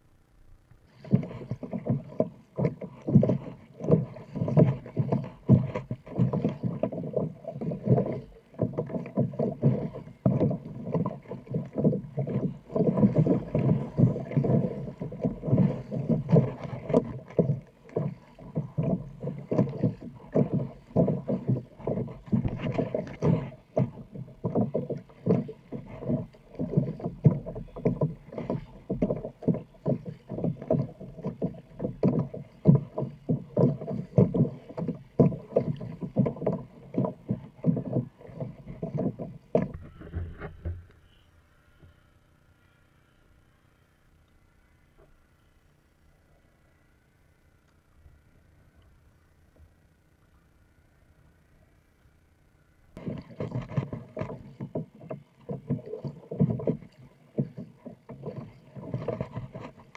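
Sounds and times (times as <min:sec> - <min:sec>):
kayak paddle strokes: 0:00.8 - 0:42.0, 0:53.0 - 0:59.9
water slapping hull: 0:00.9 - 0:40.9, 0:53.0 - 0:59.9.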